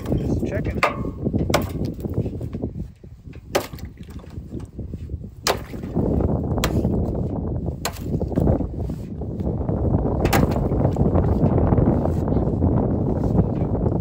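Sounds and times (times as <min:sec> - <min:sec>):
hatchet chopping ice: 0:00.8 - 0:02.1, 0:03.5 - 0:03.9, 0:05.4 - 0:05.9, 0:06.6 - 0:07.0, 0:07.8 - 0:08.2, 0:10.2 - 0:10.8.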